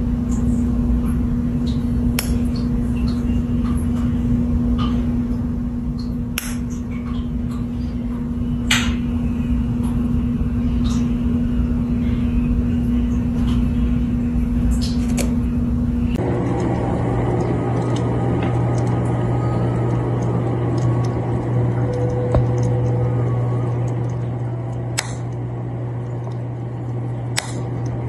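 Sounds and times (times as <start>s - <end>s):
aquarium pump humming: 0.0s - 28.0s
sharp clicks: 25.0s - 25.4s.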